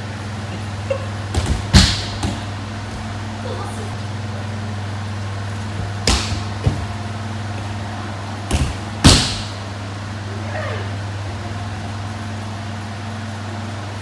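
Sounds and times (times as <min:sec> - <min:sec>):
steady low hum: 0:00.0 - 0:14.0
body thudding on mats: 0:01.3 - 0:03.2, 0:05.8 - 0:07.0, 0:08.4 - 0:09.5.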